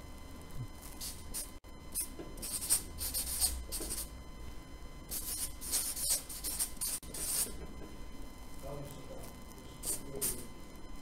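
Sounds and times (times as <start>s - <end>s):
marker pen writing on paper: 1.0s - 4.1s, 5.1s - 7.6s.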